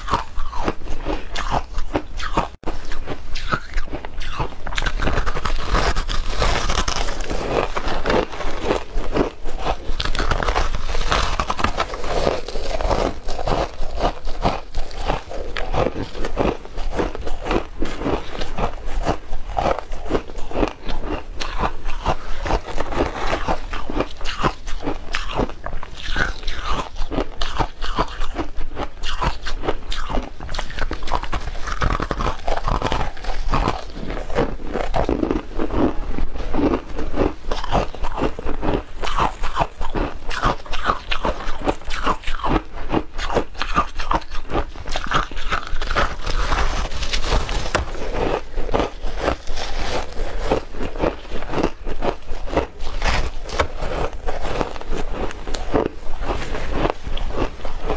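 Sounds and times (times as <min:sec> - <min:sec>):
ice crunching being chewed: 0:00.0 - 0:57.9.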